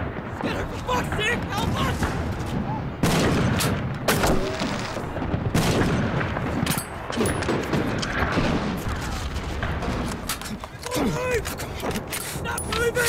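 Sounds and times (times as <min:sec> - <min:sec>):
distant gunfire and booms: 0:00.0 - 0:10.3
rifle shots: 0:03.0 - 0:10.3.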